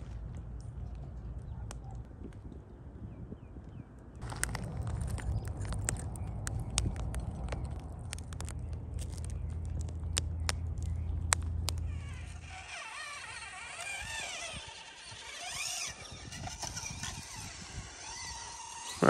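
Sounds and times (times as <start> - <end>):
sharp clicks: 4.2 - 12.6
electric motor whining: 11.5 - 19.0.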